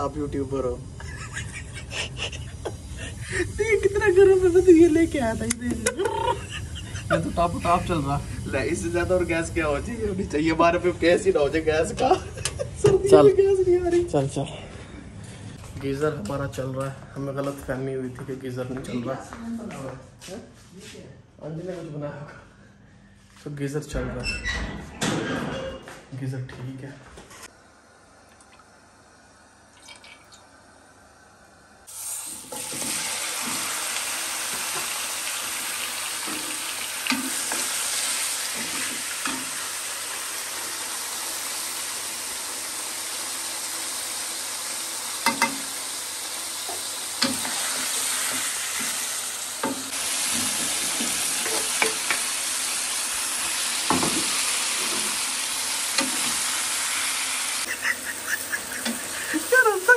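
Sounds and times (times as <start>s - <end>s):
chicken sizzling in hot oil: 0.0s - 5.5s, 6.1s - 11.4s, 31.8s - 59.9s.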